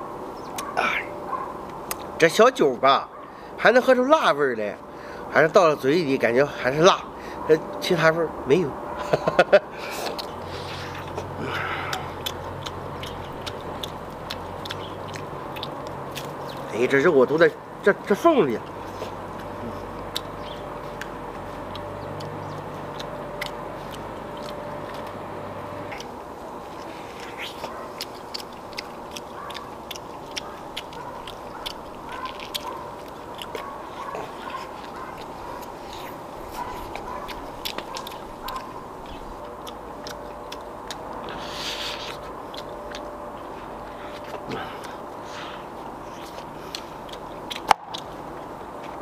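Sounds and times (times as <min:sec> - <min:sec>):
person chewing meat: 0:00.6 - 0:02.2, 0:09.1 - 0:16.7, 0:18.5 - 0:49.0
wet mouth clicks: 0:01.7 - 0:02.2, 0:10.0 - 0:16.7, 0:21.0 - 0:25.2, 0:25.9 - 0:26.2, 0:26.8 - 0:43.1, 0:46.0 - 0:49.0
steady low hum: 0:04.6 - 0:49.0
background hiss: 0:41.1 - 0:42.5.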